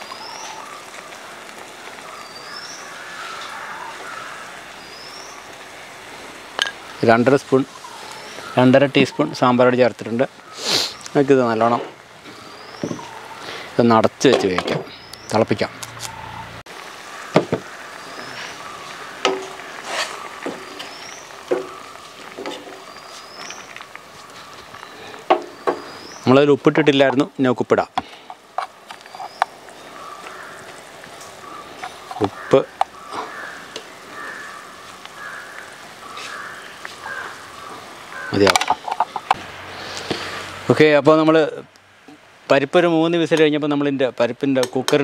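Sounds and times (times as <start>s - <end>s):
pot boiling with steady hiss: 0.0s - 45.0s.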